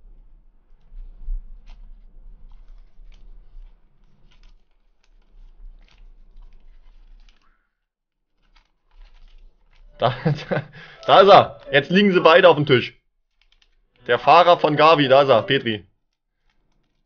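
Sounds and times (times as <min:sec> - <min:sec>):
trading cards shuffled and tapped: 0:00.7 - 0:07.5, 0:08.4 - 0:12.0, 0:16.4 - 0:17.0.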